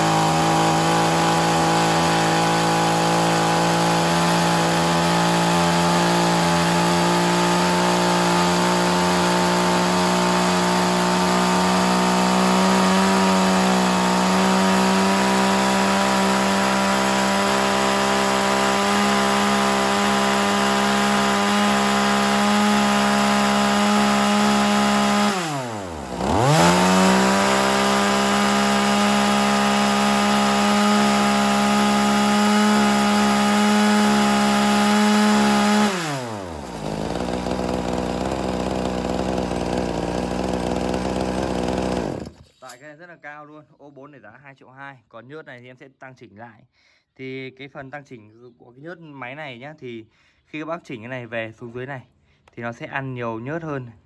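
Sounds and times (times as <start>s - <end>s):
chainsaw engine at full throttle: 0.0s - 42.5s.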